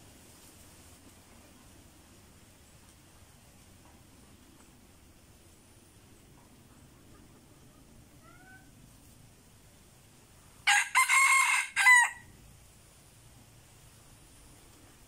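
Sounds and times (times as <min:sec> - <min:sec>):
rooster crowing: 0:10.6 - 0:12.3.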